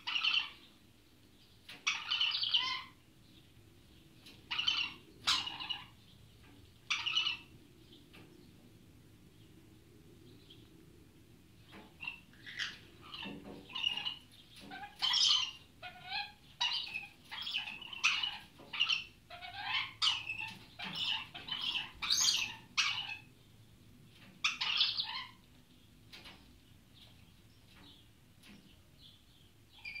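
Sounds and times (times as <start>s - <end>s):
parrots screeching: 0.0s - 0.6s, 1.8s - 3.0s, 4.5s - 6.0s, 6.9s - 7.5s, 12.0s - 23.3s, 24.4s - 25.4s.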